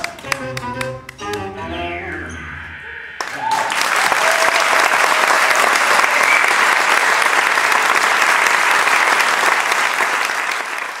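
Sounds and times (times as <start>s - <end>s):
audience applauding: 3.2s - 11.0s.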